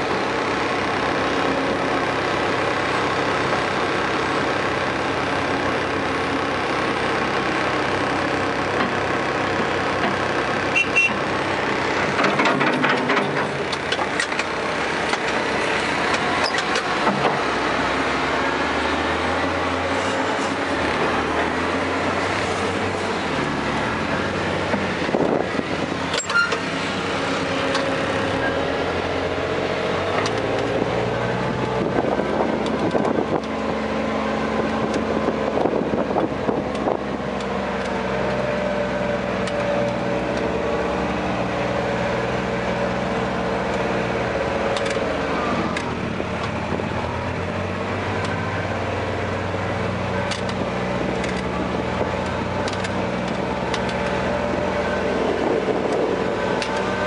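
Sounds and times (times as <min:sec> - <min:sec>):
excavator engine and hydraulics: 0:00.0 - 0:57.0
knocks and clanks: 0:12.0 - 0:15.4, 0:16.1 - 0:17.4.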